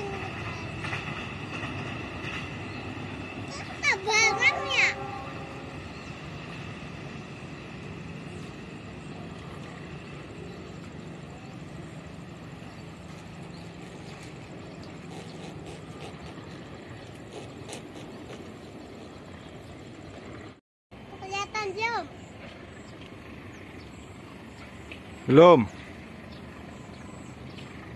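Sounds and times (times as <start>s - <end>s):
distant freight train rumble: 0.0s - 27.9s.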